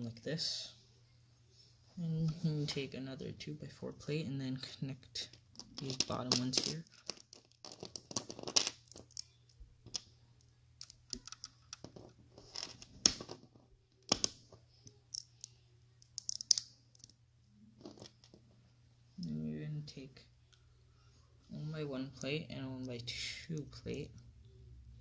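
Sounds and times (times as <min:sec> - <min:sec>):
plastic bricks clicking together: 0:05.6 - 0:09.3, 0:10.8 - 0:13.4, 0:15.1 - 0:17.1.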